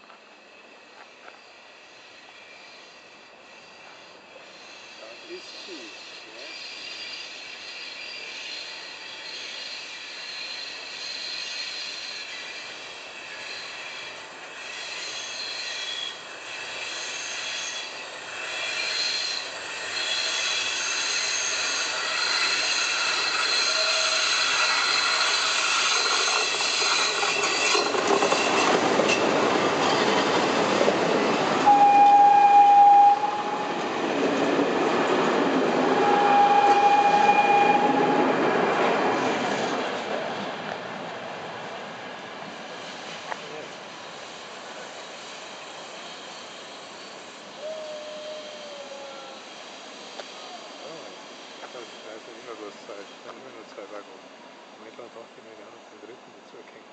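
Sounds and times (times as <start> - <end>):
electric locomotive passing: 0.0 - 56.9
thin high squeals: 1.4 - 28.8, 44.1 - 53.3
wheels rumbling on rails: 3.7 - 47.9
loud steady high tone: 31.6 - 33.8.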